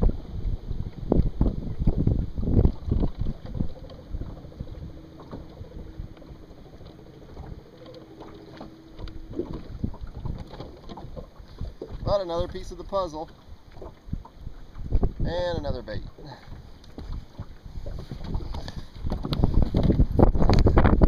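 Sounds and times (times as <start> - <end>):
faint steady hum: 0.0 - 11.9
wind buffeting microphone: 0.0 - 21.0.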